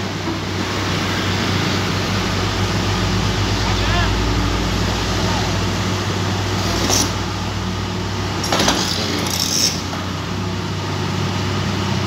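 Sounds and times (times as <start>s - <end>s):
diesel engine humming: 0.0s - 8.5s.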